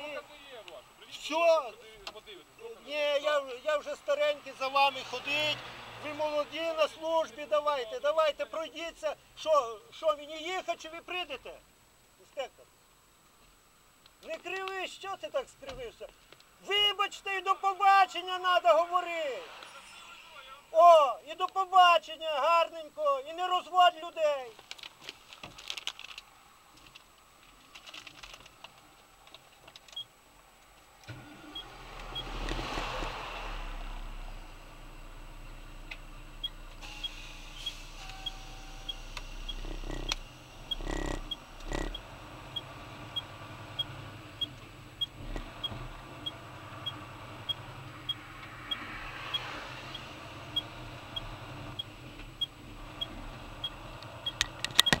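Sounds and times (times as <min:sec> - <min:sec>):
car passing close alongside: 0:04.8 - 0:06.6, 0:31.1 - 0:41.0, 0:41.6 - 0:54.6
faint clicks and rustling: 0:24.5 - 0:31.2
low hum: 0:30.9 - 0:54.6
short high beeps: 0:36.4 - 0:42.0.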